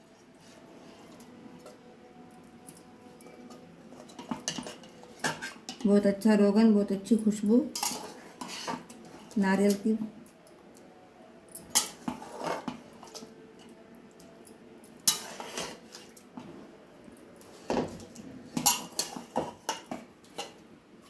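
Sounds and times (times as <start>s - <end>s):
ladle scraping metal pot: 7.8s - 9.4s, 11.7s - 13.2s, 15.0s - 16.2s.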